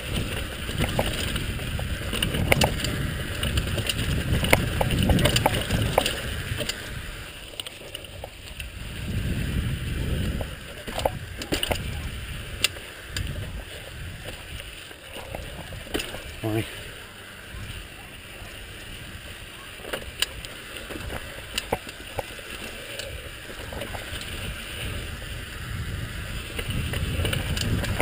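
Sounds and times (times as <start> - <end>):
wind rushing over microphone: 0.0 - 7.3, 8.5 - 16.6, 23.1 - 28.0
bike clicking and rattling: 0.0 - 28.0
tyres rumbling over dirt: 0.0 - 28.0.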